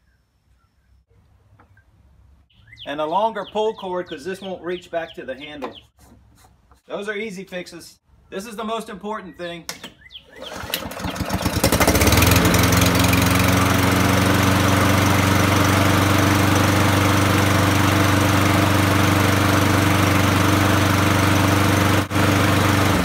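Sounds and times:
lawn mower engine pull-started: 10.3 - 23.0
lawn mower engine running: 10.3 - 23.0.

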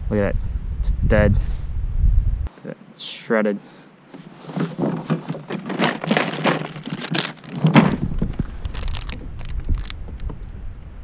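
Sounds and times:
fishing gear rustling and clicking: 4.1 - 10.4.

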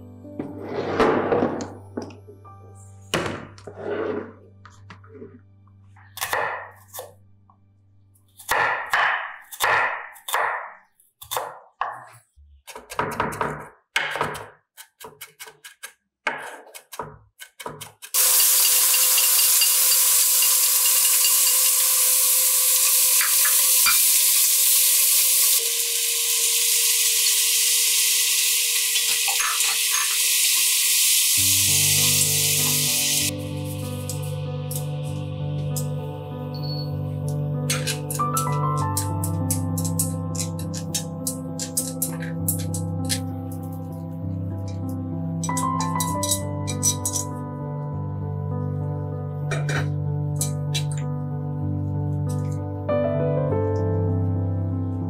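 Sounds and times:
knife chopping on wooden board: 8.5 - 18.1
food sizzling in a pan: 18.2 - 34.8.

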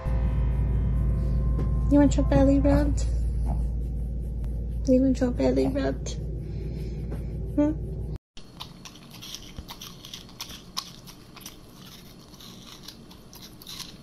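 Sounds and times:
crunchy chewing: 8.4 - 14.0.

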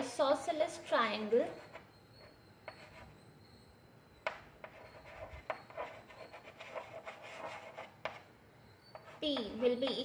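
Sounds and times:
chalk scratching on chalkboard: 1.2 - 3.2, 4.6 - 10.0
chalk tapping on chalkboard: 1.5 - 3.1, 4.2 - 8.3, 8.9 - 10.0.

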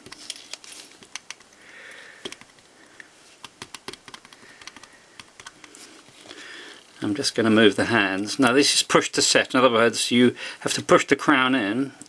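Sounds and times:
small clicks and taps: 0.0 - 1.6, 2.2 - 5.8.

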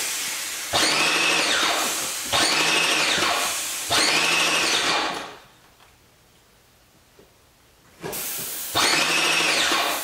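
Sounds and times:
paint sprayer hissing: 0.0 - 4.4, 8.0 - 10.0.

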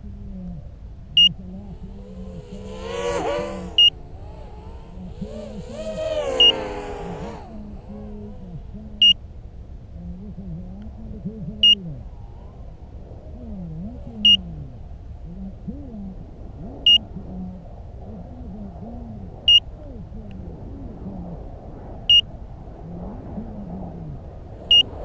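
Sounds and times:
drone motors whining: 1.2 - 9.2, 16.7 - 17.4, 24.6 - 25.0
short high-pitched beeps: 6.4 - 6.6, 11.6 - 11.8.

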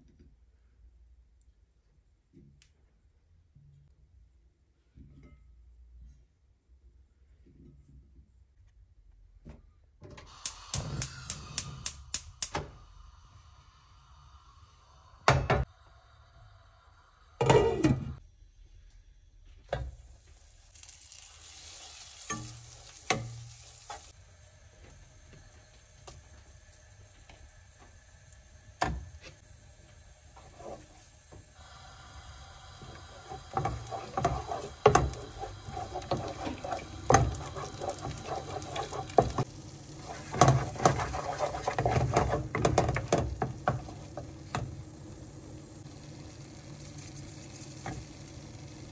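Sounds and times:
paste sizzling in a pan: 20.0 - 48.9
wooden spatula scraping a pan: 30.4 - 31.1, 32.8 - 44.7.

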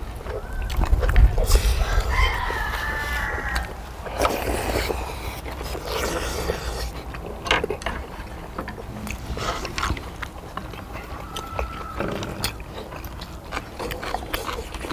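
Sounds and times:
chewing: 0.0 - 14.9
slurping broth: 4.1 - 7.3.

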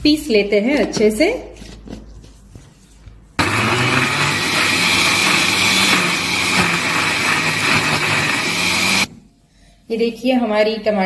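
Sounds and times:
mixer grinder whining: 3.4 - 9.1.

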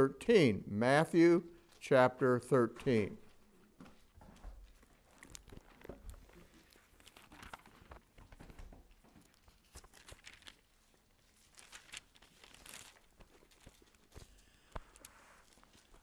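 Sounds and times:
thin pages turning: 4.7 - 16.0.

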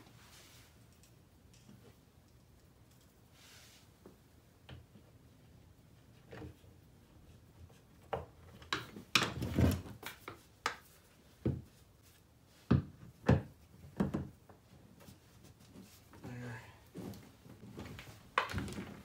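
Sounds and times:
plastic parts knocking and clunking: 8.0 - 11.8, 12.6 - 14.7, 17.7 - 19.0.

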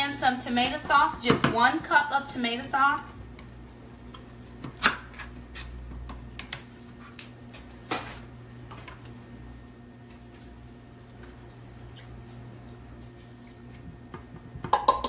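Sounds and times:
can and cup clicking and knocking: 14.6 - 15.0.

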